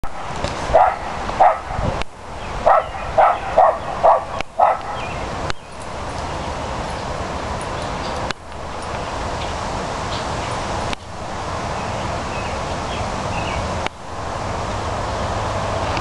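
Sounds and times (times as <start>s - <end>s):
dog barking: 0.7s - 1.8s, 2.6s - 5.0s.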